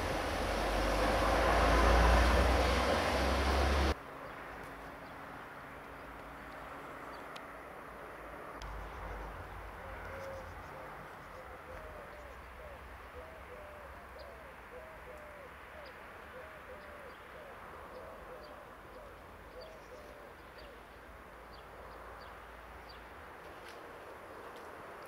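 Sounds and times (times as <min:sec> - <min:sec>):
bird hooting: 0:09.1 - 0:15.5.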